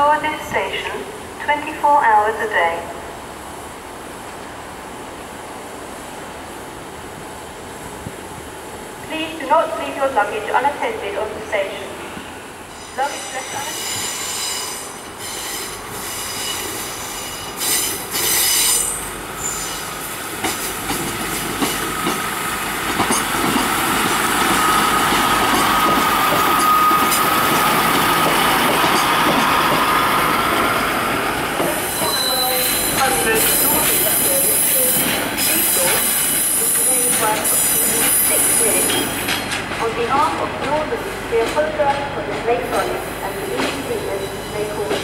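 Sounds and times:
train running slowly: 0.0s - 45.0s
wheels squealing on rails: 12.7s - 22.4s, 23.0s - 30.8s, 31.6s - 39.6s, 42.7s - 45.0s.

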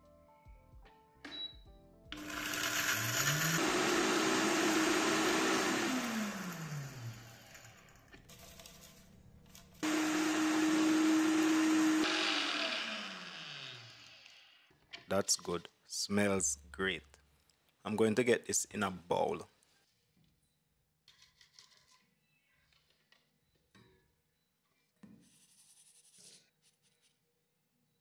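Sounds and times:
electric blender grinding spices: 2.2s - 8.0s, 9.8s - 14.6s.

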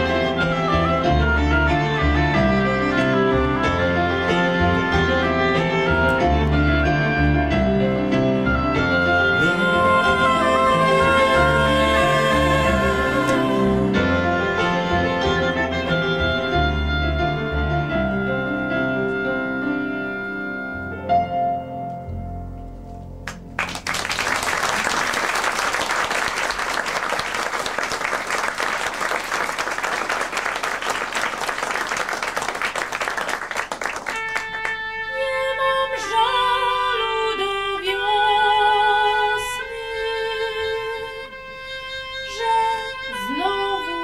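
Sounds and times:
oboe playing long notes: 0.0s - 21.6s, 33.9s - 44.0s
bowed double bass: 0.0s - 23.6s
audience applauding: 23.2s - 34.9s.

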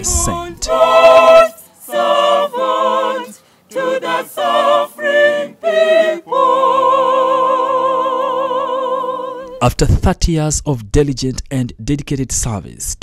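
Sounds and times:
unaccompanied choir singing: 0.0s - 9.6s.

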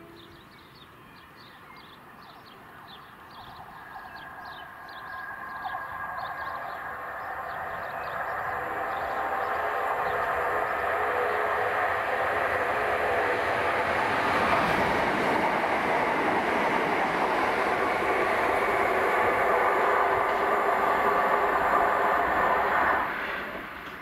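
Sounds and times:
electric train approaching: 2.7s - 24.0s
train motor whine: 5.2s - 24.0s.

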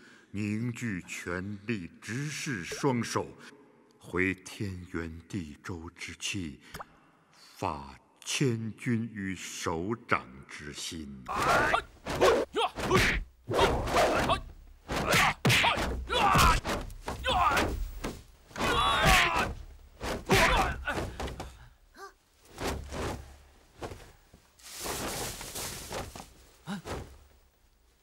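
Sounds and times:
fighters grunting and yelling: 11.3s - 17.9s, 18.5s - 21.8s
punch and kick thuds: 13.8s - 21.6s.

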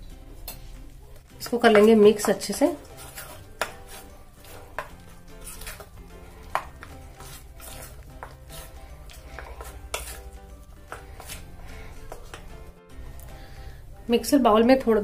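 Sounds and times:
soft background music: 0.0s - 15.0s
metal spoon stirring paste in bowl: 1.3s - 12.7s.

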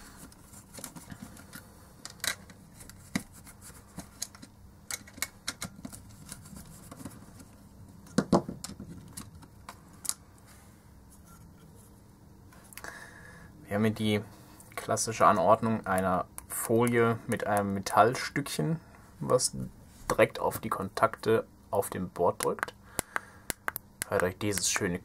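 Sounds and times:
plastic parts clicking and tapping: 4.0s - 6.0s, 8.0s - 10.2s.

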